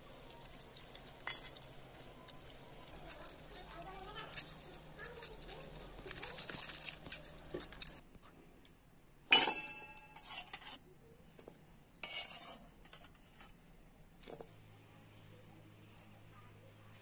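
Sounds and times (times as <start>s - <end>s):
spoon clinking in steel bowl: 9.3s - 10.6s.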